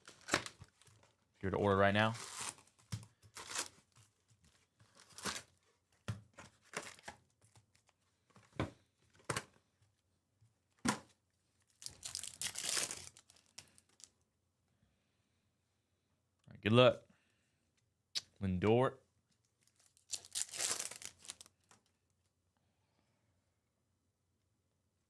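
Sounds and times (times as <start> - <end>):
foil pack crinkling torn open: 0.0 - 1.1, 2.1 - 4.0, 5.0 - 5.6, 11.7 - 14.1, 19.7 - 21.8
card packs rustling and tapping: 0.0 - 1.2, 2.0 - 9.6, 11.8 - 14.1, 20.1 - 21.8.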